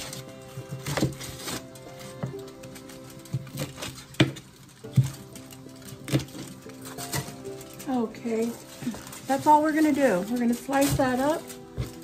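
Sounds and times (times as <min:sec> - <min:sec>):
knife chopping leaves: 0:00.0 - 0:02.2
background music with held tones: 0:00.0 - 0:12.0.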